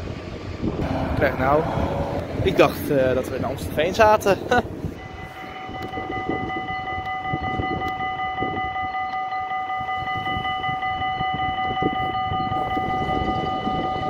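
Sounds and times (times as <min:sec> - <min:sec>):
low uneven rumble: 0:00.0 - 0:05.2
tram whine: 0:00.0 - 0:14.0.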